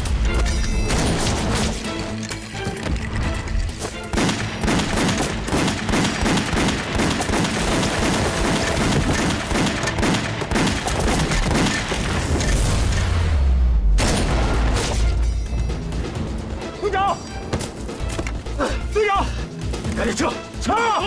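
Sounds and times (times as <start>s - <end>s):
dramatic background music: 0.0s - 21.0s
rapid gunfire: 4.0s - 12.4s.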